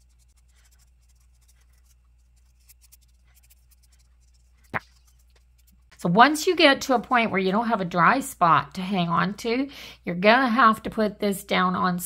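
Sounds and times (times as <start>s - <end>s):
paintbrush scratching: 0.0s - 6.1s.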